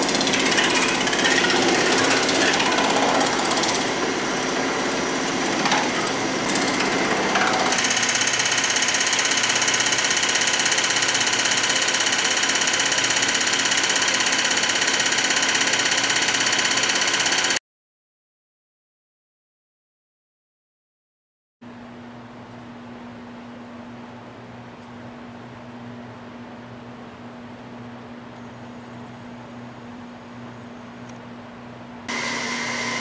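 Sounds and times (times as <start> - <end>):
power hammer on sheet metal: 0.0 - 17.6.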